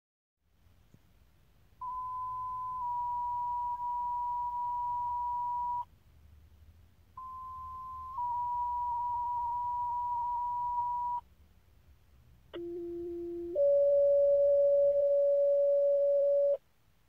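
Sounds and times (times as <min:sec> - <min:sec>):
pager tones: 0:01.8 - 0:05.8, 0:07.2 - 0:11.2, 0:12.6 - 0:16.6.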